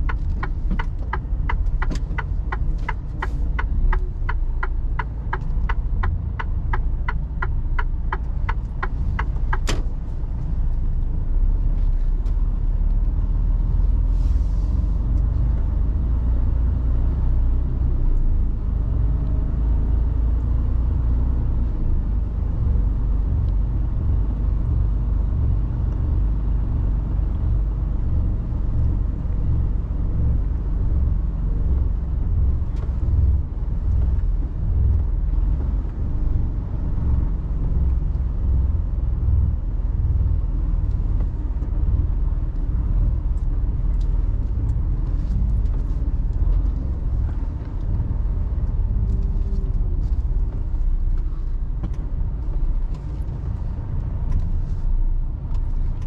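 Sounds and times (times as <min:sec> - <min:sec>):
truck engine rumble: 0:00.0 - 0:56.0
turn signal ticking: 0:00.0 - 0:56.0.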